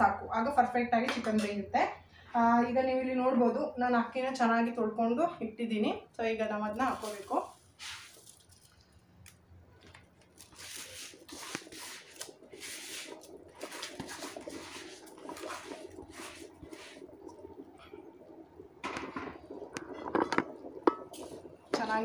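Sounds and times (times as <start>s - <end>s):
rice splashing into water: 7.0s - 8.8s, 10.3s - 17.4s.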